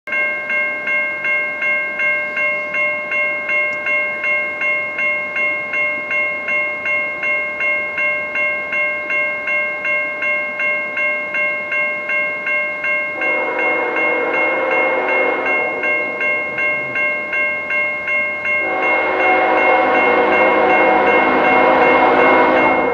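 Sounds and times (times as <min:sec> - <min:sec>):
crossing warning bell ringing: 0:00.1 - 0:22.9
locomotive air horn: 0:13.2 - 0:16.5, 0:18.6 - 0:22.9.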